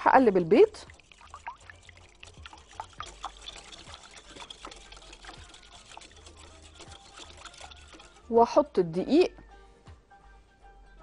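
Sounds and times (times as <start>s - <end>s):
whisk clicking against glass bowl: 0.2s - 8.3s.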